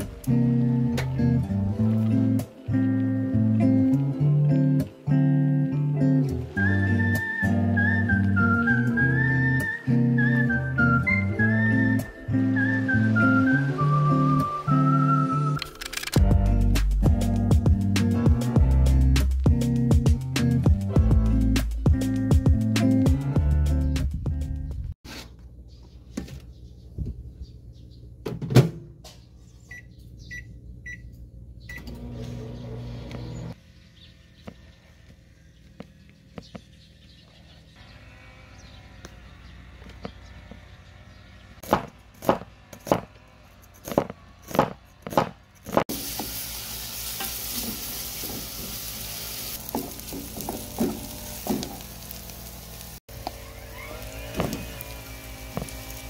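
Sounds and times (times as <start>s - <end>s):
microwave beeps: 29.7s - 31.1s, 31.7s - 32.2s
microwave oven running: 31.6s - 33.5s, 52.7s - 56.0s
onion sizzling in a pot: 45.9s - 56.0s.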